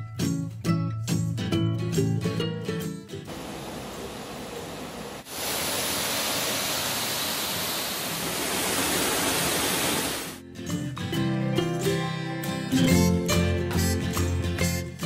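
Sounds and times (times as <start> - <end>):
music: 0.0 - 3.3, 10.4 - 15.0
waterfall rushing over rocks: 3.3 - 10.4.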